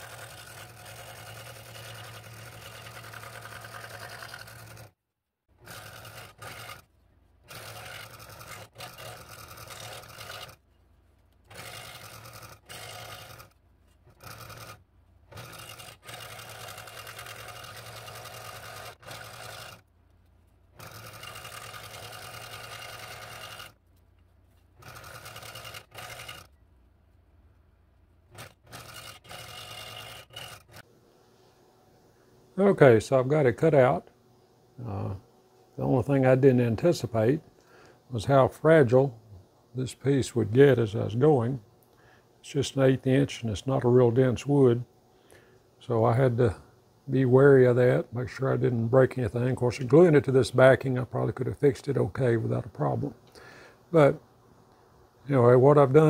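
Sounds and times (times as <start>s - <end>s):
scroll saw cutting wood: 0.0s - 5.0s, 5.6s - 19.9s, 20.7s - 23.8s, 24.5s - 26.6s, 28.3s - 30.9s.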